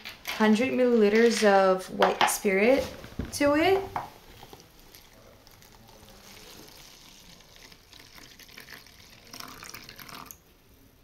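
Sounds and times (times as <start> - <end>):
liquid pouring into plastic tub: 4.0 - 10.4.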